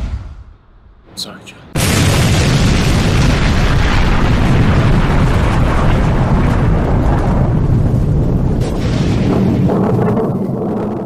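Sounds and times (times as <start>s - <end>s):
explosion rumble: 1.7s - 11.0s.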